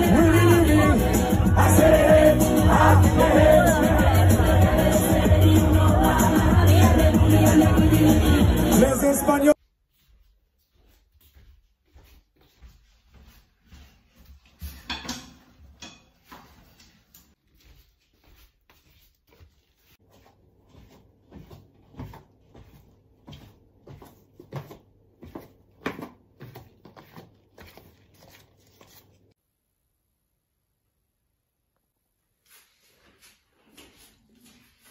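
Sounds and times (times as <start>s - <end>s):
footsteps on wooden stairs: 9.9s - 14.9s, 17.4s - 27.8s.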